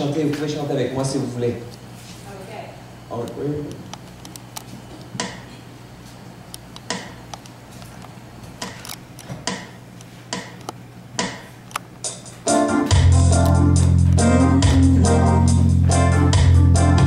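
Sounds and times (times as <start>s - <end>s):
steady low hum: 0.0s - 17.0s
keyboard and bass guitar: 12.0s - 17.0s.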